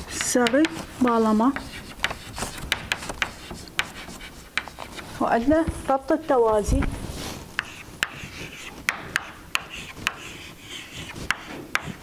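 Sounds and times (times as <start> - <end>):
chalk tapping on board: 0.0 - 5.2, 7.6 - 12.0
chalk scratching on chalkboard: 0.0 - 12.0.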